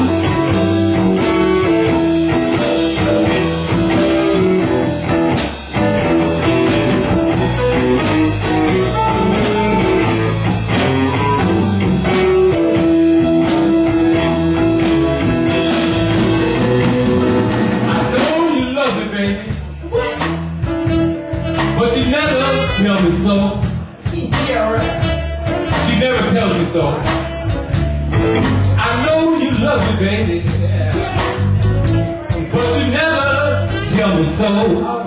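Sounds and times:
blues band playing: 0:00.0 - 0:35.0.

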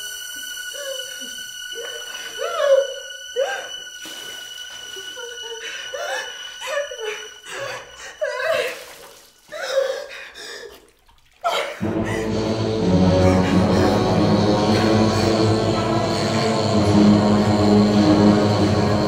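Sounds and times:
thin high tone: 0:00.0 - 0:09.0
woman laughing and giggling: 0:00.7 - 0:10.1.

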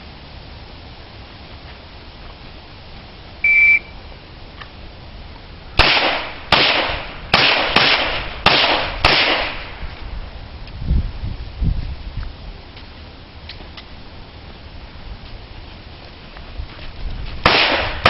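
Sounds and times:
shot timer beep: 0:03.4 - 0:03.9
pistol shots: 0:05.8 - 0:09.7, 0:17.4 - 0:18.0.

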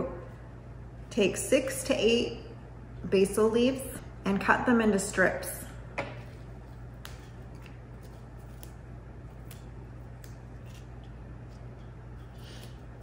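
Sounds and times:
steady low hum: 0:00.0 - 0:13.0
basil stems snapping: 0:07.0 - 0:10.9.

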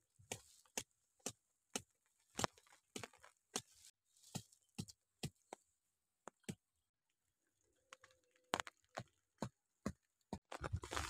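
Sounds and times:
wooden stakes pounded into dirt: 0:00.2 - 0:06.7.

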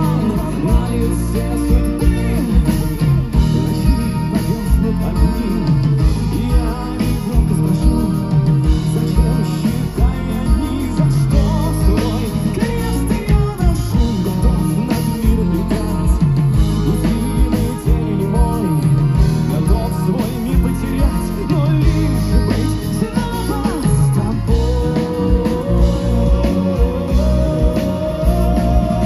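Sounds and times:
bass guitar: 0:00.0 - 0:29.0
drums: 0:00.0 - 0:29.0
man singing through pa: 0:00.0 - 0:29.0.

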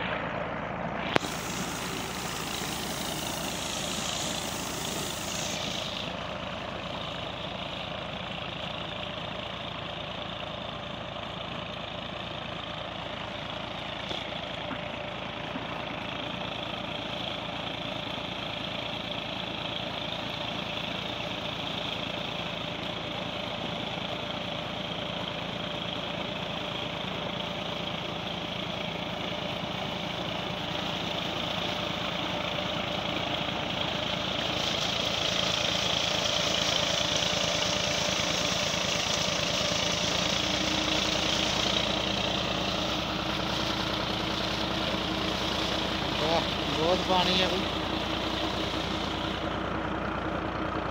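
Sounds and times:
tractor diesel engine running: 0:00.0 - 0:50.9
water gushing from pipe: 0:01.0 - 0:06.2, 0:34.2 - 0:49.4.

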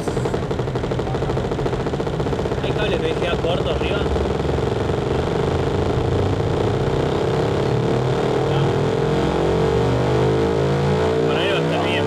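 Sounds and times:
electronic drone: 0:00.0 - 0:12.0
low bass tones: 0:00.0 - 0:12.0
tones rising in pitch: 0:04.0 - 0:12.0.

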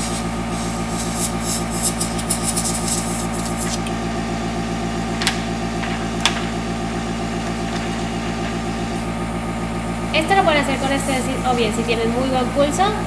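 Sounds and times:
airbrush spray hissing: 0:00.0 - 0:03.9, 0:10.6 - 0:11.6
compressor pulsing hum: 0:00.0 - 0:13.0.

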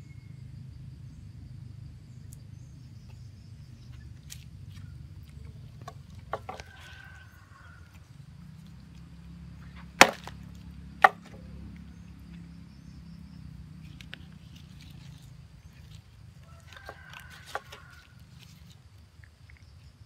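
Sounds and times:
knife chopping on wooden board: 0:05.8 - 0:06.8, 0:10.0 - 0:10.4.

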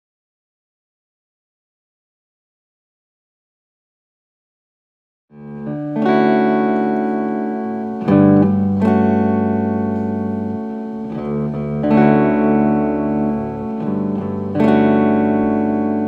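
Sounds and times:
guitar chords ringing: 0:05.3 - 0:16.0.

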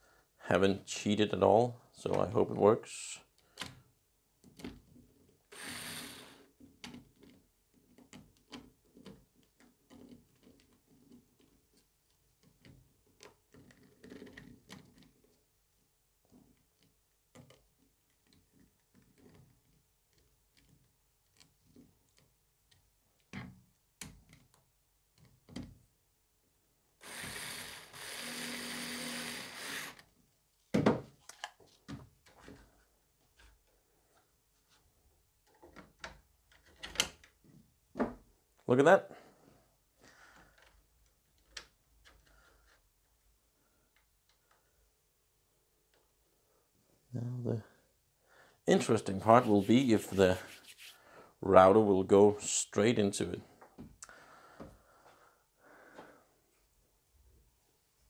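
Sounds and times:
small clicks and handling of parts: 0:03.3 - 0:05.4, 0:06.6 - 0:15.5, 0:16.2 - 0:25.8, 0:30.0 - 0:34.3, 0:35.4 - 0:37.5, 0:40.3 - 0:44.8
cordless screwdriver driving screws: 0:05.5 - 0:06.4, 0:27.0 - 0:30.0.

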